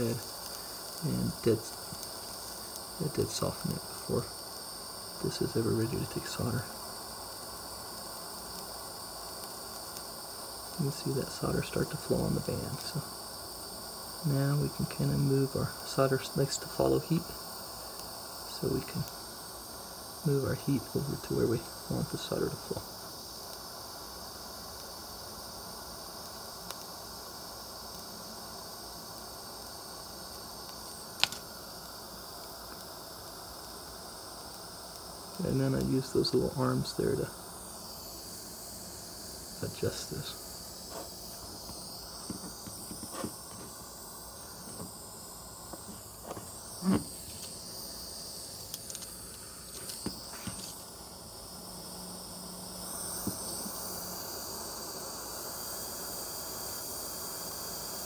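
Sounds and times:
gas torch flame hissing: 0.0s - 58.0s
sharp click: 31.2s - 31.4s.

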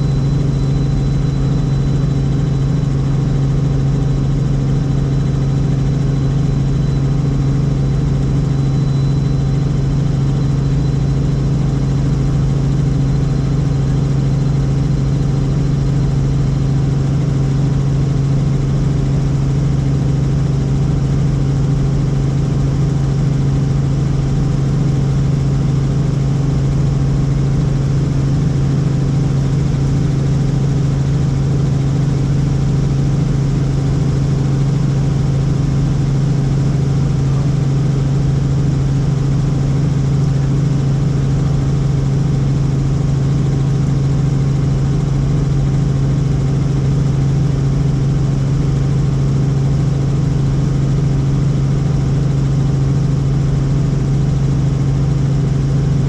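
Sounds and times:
helicopter engine and rotors drone: 0.0s - 56.0s.

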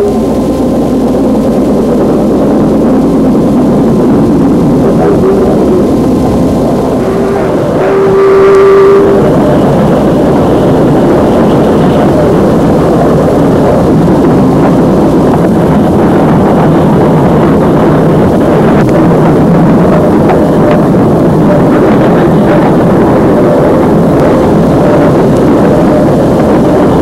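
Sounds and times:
locomotive rumbling: 0.0s - 27.0s
locomotive horn note: 4.8s - 13.9s.

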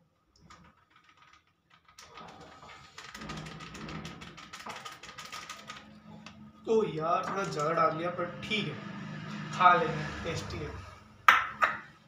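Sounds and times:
spice packet crinkling and clicking: 4.3s - 6.4s.

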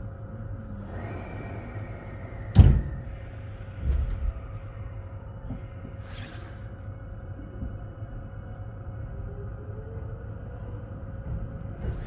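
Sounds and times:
standing train hum and rumble: 0.0s - 12.0s
train doors shutting: 0.7s - 8.0s, 11.4s - 12.0s
short hiss of air: 6.0s - 6.7s.

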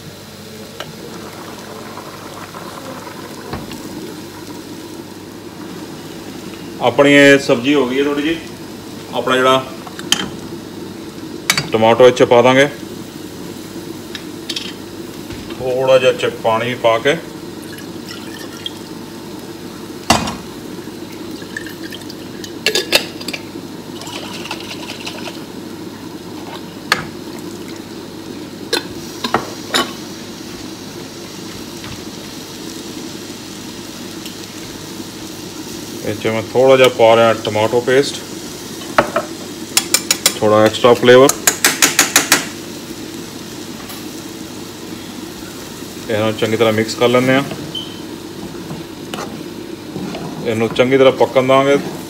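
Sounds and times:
water boiling bubbling: 0.0s - 15.7s, 16.4s - 42.0s.

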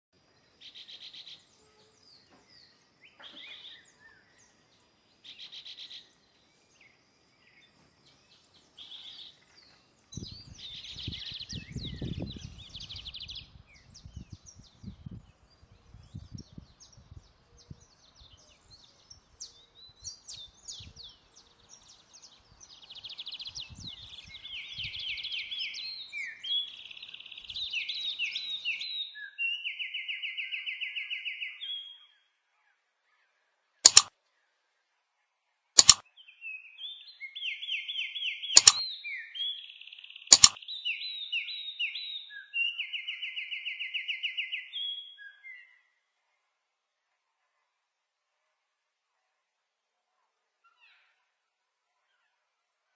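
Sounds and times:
birds chirping and singing: 7.4s - 29.1s.

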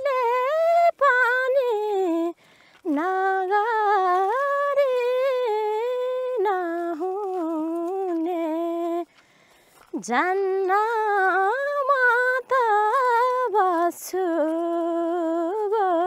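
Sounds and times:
woman singing wordless melody: 0.0s - 9.2s, 9.8s - 16.0s.

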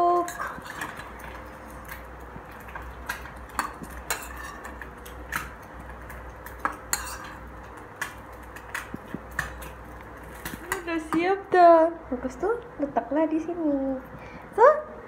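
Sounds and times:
metal spoon scraping bowls: 0.1s - 1.5s, 2.7s - 5.1s, 6.6s - 7.4s.

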